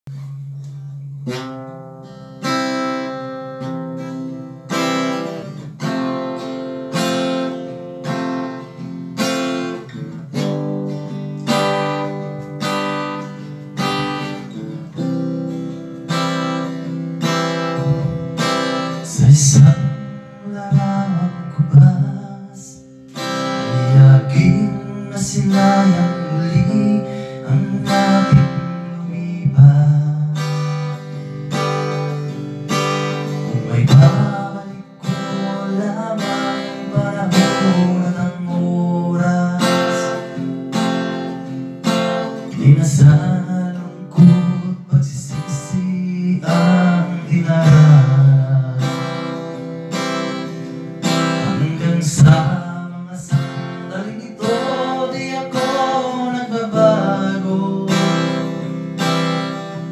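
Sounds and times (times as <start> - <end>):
acoustic guitar strumming chords: 0.0 - 59.9
man singing: 16.8 - 59.9.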